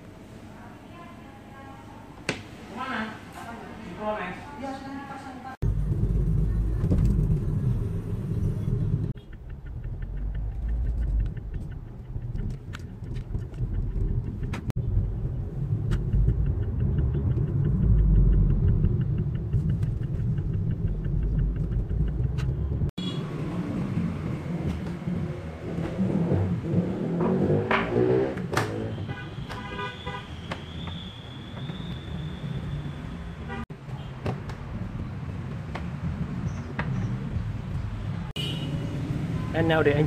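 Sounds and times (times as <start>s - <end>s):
car cabin road rumble: 5.6s - 28.8s.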